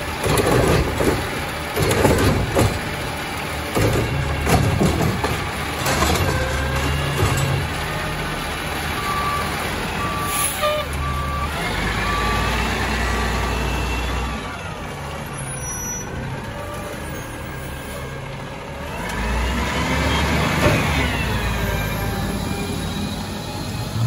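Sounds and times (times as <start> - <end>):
diesel engine running: 0.0 - 24.0
reversing alarm beeping: 9.0 - 12.6.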